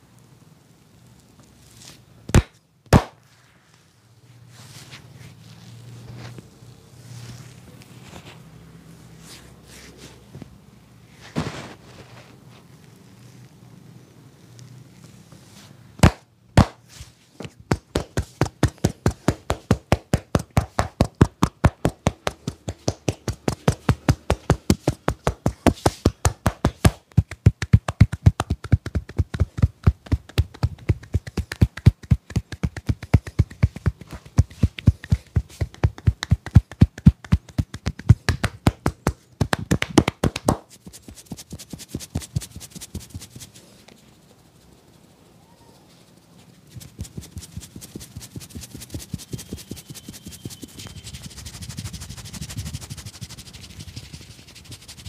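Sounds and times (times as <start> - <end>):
fingers rubbing through hair: 14.9 - 55.0
hands tapping on a head: 16.0 - 16.8, 17.4 - 43.4, 46.8 - 54.2.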